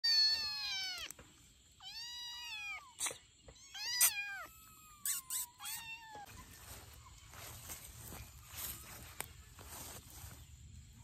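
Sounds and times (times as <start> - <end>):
kitten meowing: 0.0 - 1.1, 1.8 - 6.3.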